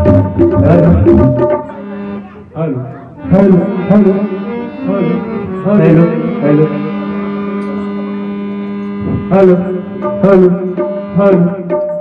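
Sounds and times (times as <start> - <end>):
tabla strokes: 0.0 - 2.2, 7.6 - 12.0
harmonium: 0.0 - 12.0.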